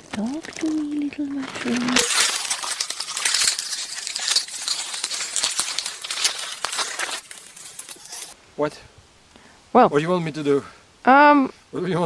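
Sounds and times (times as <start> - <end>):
grass and leaves rustling on microphone: 0.0 - 9.3.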